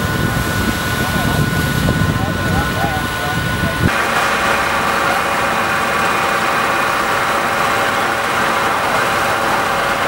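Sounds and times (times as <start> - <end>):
truck engine idling: 2.1 - 10.0.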